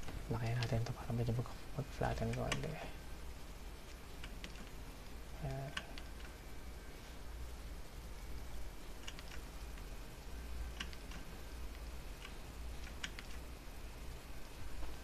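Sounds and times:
computer mouse and keyboard clicks: 0.0s - 1.0s, 2.2s - 2.8s, 4.2s - 4.8s, 5.4s - 6.4s, 9.0s - 9.9s, 10.7s - 13.5s
steady low hum: 0.0s - 15.0s.

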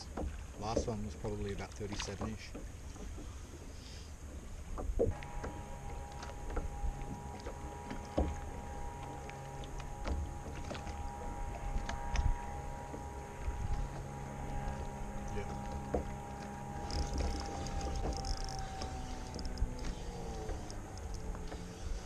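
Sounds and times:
light clicks and knocks: 0.0s - 6.7s
steady two-note hum: 0.0s - 22.0s
water lapping against kayak hull: 0.0s - 22.0s
wind on microphone: 8.0s - 22.0s
soft ticks: 15.6s - 21.7s.

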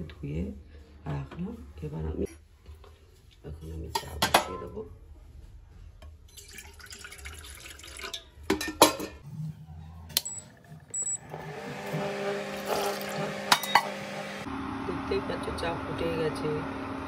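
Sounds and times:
cooktop fan hum: 0.0s - 17.0s
milk pouring into pot: 6.3s - 8.3s.

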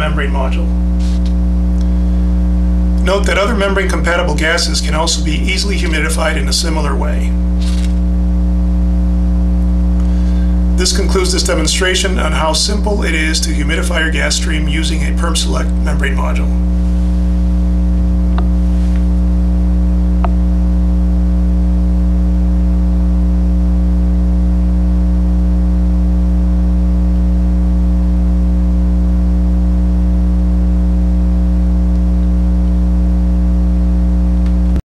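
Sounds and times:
electrical mains hum: 0.0s - 34.8s.

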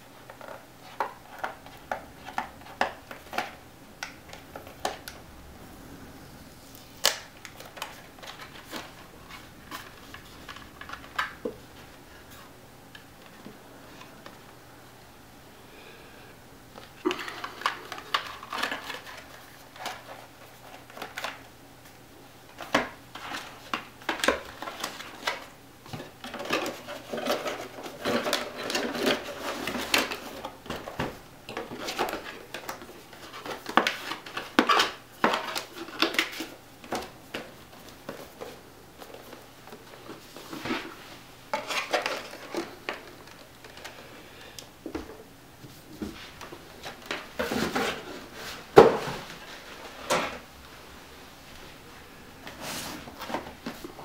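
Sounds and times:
packaging rustling: 6.8s - 12.4s.

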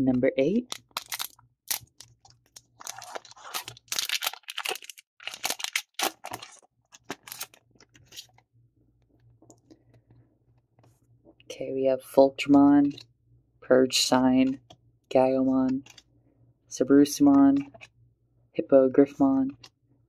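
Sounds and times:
foil wrapper tearing and crinkling: 0.7s - 8.3s
handling cards: 0.7s - 8.4s, 15.7s - 16.1s.

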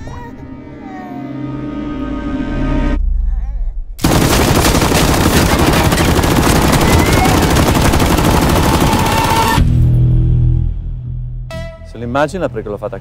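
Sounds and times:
automatic gunfire: 4.0s - 9.6s.

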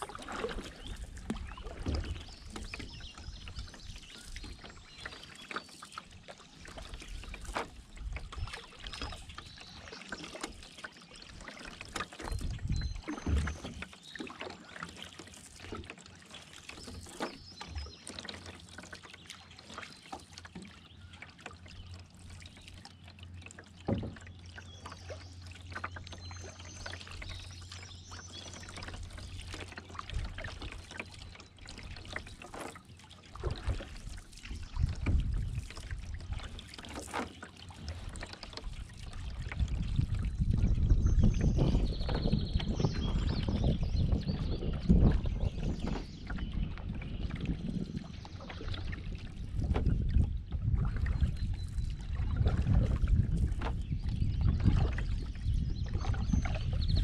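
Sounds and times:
water dripping off paddle: 0.0s - 56.6s
paddle swishing through water: 0.0s - 57.0s
faint birdsong: 16.3s - 32.7s.

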